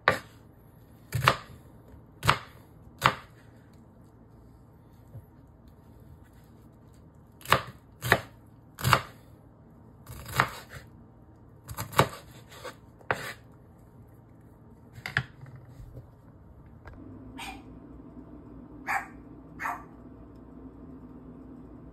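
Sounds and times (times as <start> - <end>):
knife chopping on wooden board: 0.0 - 0.3, 1.1 - 1.6, 2.2 - 3.4, 7.4 - 9.1, 10.1 - 10.8, 11.7 - 13.4.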